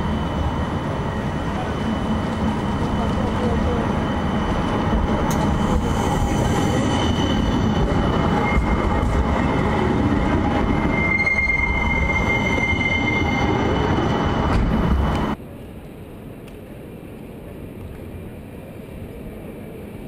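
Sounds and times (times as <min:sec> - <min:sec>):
tram rumbling past: 0:00.0 - 0:15.6
wheels squealing on track: 0:10.7 - 0:14.0.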